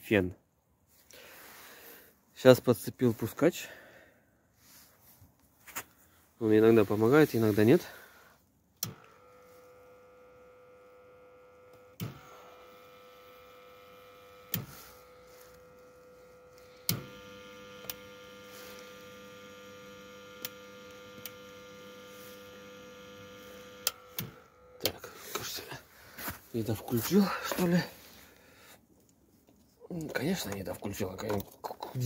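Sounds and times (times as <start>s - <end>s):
battery charger humming: 8.8s - 25.1s
switch clicks: 16.8s - 17.2s.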